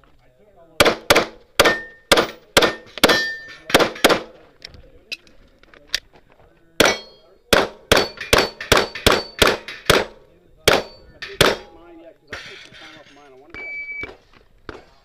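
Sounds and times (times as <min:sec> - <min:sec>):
pistol shots: 0:00.8 - 0:04.3, 0:06.8 - 0:11.8
steel targets ringing: 0:01.6 - 0:04.2, 0:06.8 - 0:10.1.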